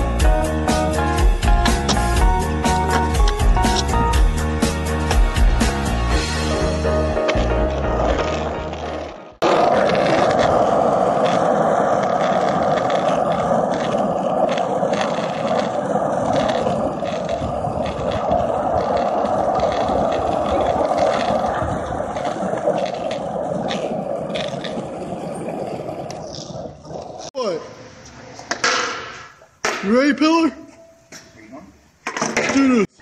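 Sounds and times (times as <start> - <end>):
music track: 0.0 - 9.4
skateboard wheels rolling on asphalt: 0.0 - 29.5.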